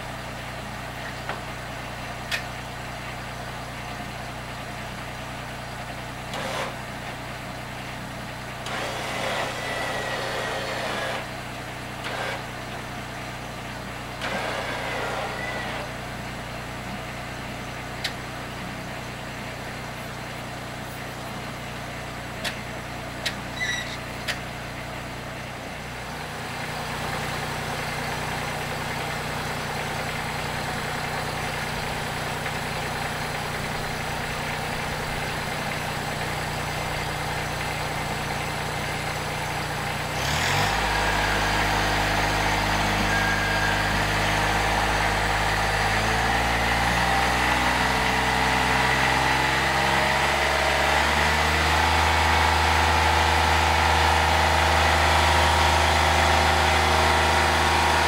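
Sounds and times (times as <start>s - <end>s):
tractor engine revving: 8.6s - 11.4s, 12.0s - 12.7s, 14.1s - 16.1s, 25.9s - 58.0s.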